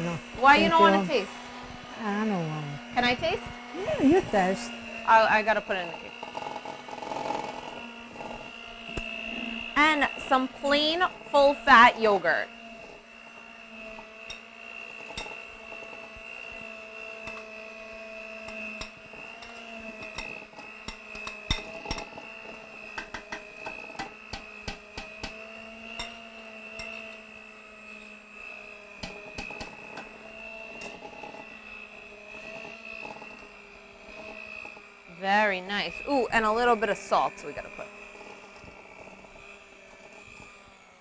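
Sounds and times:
electric mixer whining: 0:00.0 - 0:41.0
beaters clicking against metal bowl: 0:22.9 - 0:26.2.

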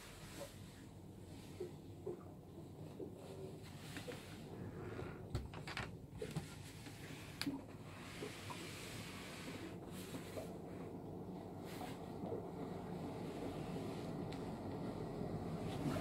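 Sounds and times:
low steady hum: 0:00.0 - 0:16.0.

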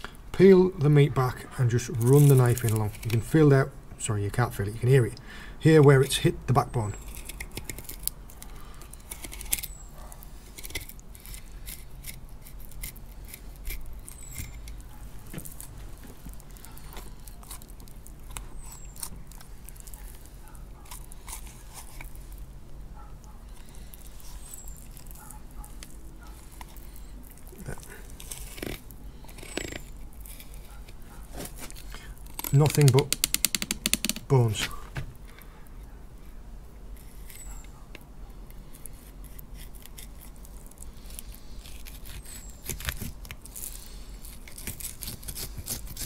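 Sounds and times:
knife scraping along fish bones: 0:07.0 - 0:15.7, 0:16.3 - 0:22.3, 0:38.5 - 0:46.0.

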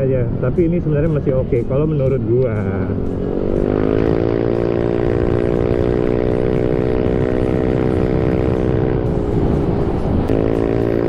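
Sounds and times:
scooter engine at high revs: 0:03.0 - 0:11.0.

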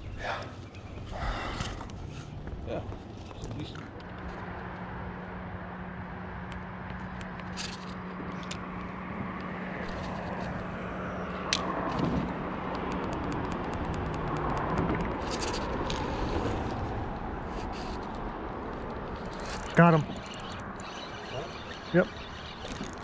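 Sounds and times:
low traffic hum: 0:00.0 - 0:23.0
rushing ambience: 0:18.2 - 0:23.0
fishing reel clicking: 0:19.2 - 0:23.0.

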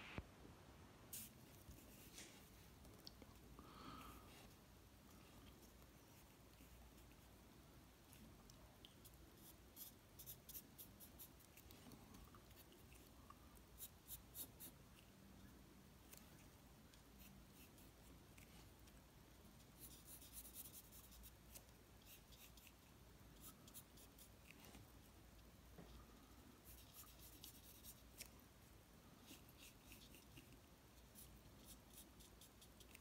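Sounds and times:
pen scratching on paper: 0:19.8 - 0:21.3.

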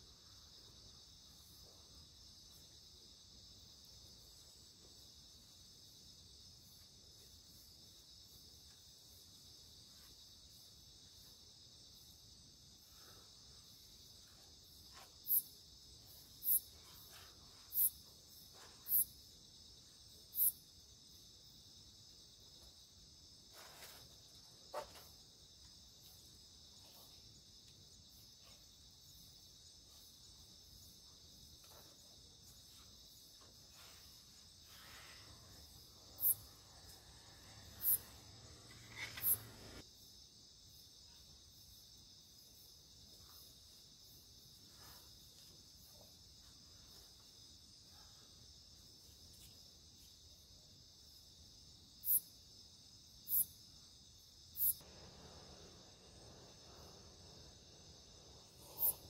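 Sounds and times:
night insects chirping: 0:00.0 - 0:59.0.

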